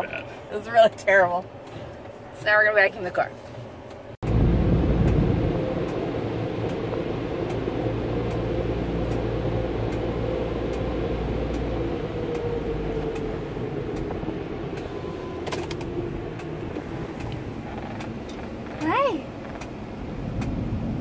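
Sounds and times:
car air-conditioning blower hum: 0.0s - 21.0s
car engine running: 0.0s - 21.0s
faint regular clicking: 15.5s - 19.8s, 20.4s - 20.6s.

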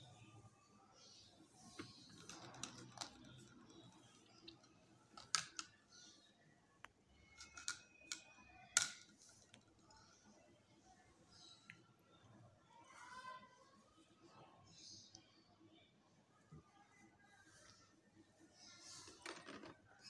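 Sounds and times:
plastic toy pieces clicking: 2.0s - 5.8s, 7.2s - 9.8s.

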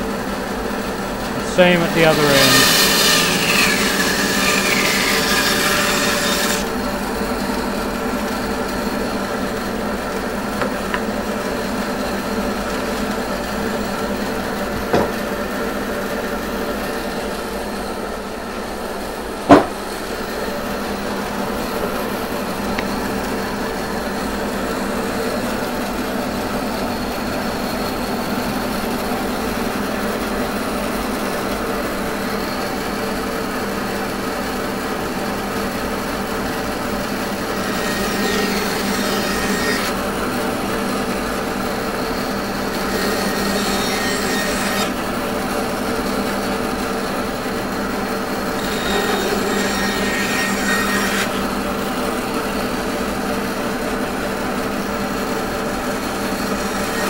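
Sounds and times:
bandsaw cutting wood: 1.3s - 6.8s, 36.6s - 45.8s, 48.3s - 52.4s
sharp knock: 19.5s - 19.8s.

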